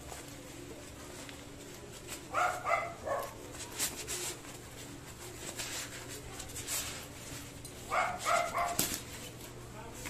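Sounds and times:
dog barking: 2.3 - 3.4, 7.9 - 8.8.

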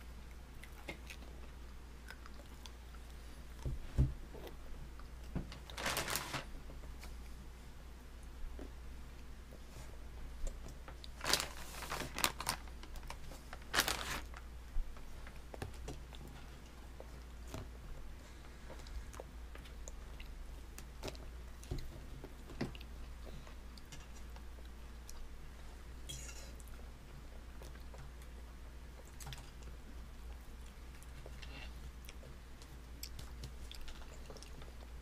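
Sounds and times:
low steady hum: 0.0 - 35.0
rustling scrapes: 5.8 - 6.5, 11.2 - 12.6.

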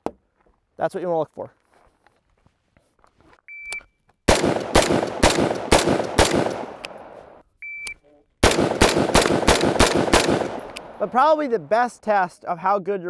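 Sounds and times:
shot timer beep: 3.5 - 3.9, 7.6 - 8.0
rifle shots echoing: 4.3 - 7.4, 8.4 - 11.6.

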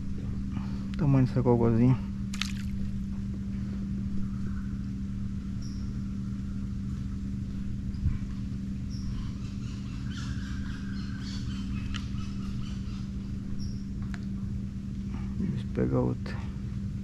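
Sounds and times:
steady low hum: 0.0 - 17.0
bird chirping: 5.5 - 6.0, 8.9 - 13.9.

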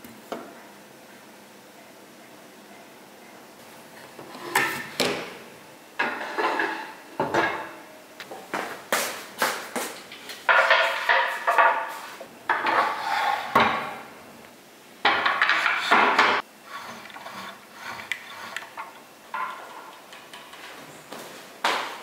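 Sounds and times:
wooden boards clattering: 10.5 - 11.9.

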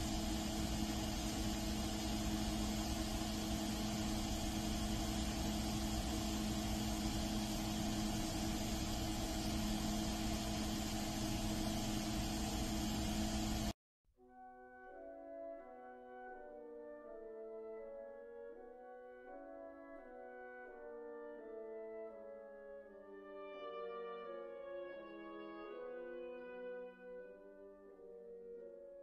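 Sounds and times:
broad hiss: 0.0 - 13.7
steady machine hum: 0.0 - 13.8.

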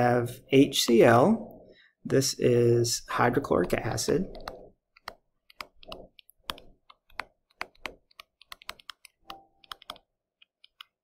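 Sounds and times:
stylus tapping on tablet screen: 3.5 - 11.0.

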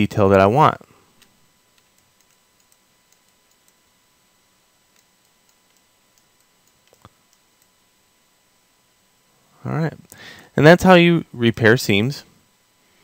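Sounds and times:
mouse and keyboard clicks: 1.2 - 3.8.

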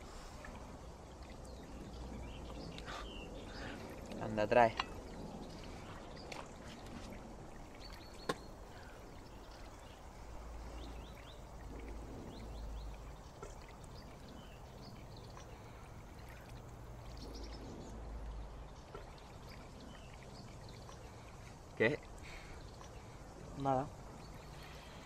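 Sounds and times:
low rumble: 9.2 - 15.8, 16.5 - 20.1.

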